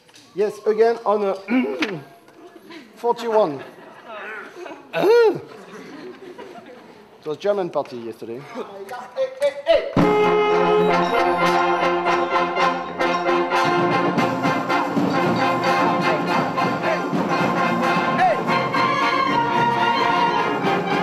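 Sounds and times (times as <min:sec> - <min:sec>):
drum strokes: 0:10.0 - 0:21.0
sustained brass chords: 0:10.0 - 0:21.0
wind band playing: 0:10.0 - 0:21.0.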